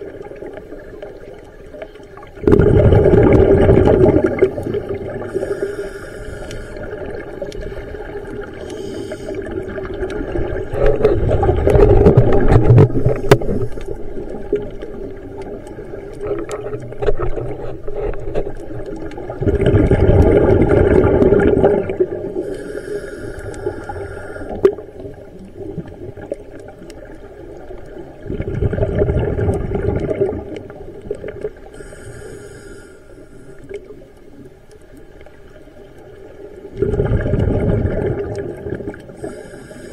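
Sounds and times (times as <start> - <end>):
exhaled bubbles rushing: 2.2 - 5.6, 6.8 - 22.5, 24.5 - 31.7, 36.2 - 39.2
regulator hissing inhalations: 5.2 - 7.0, 8.5 - 9.5, 22.4 - 24.7, 31.7 - 33.8, 39.1 - 39.9.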